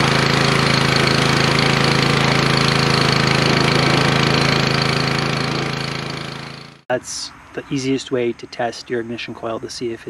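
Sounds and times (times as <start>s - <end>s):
pressure washer engine running: 0.0s - 6.8s.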